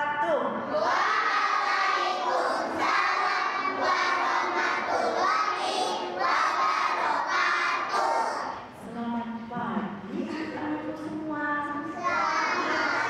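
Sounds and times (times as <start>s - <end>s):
children singing and calling out: 0.7s - 8.6s, 12.0s - 13.0s.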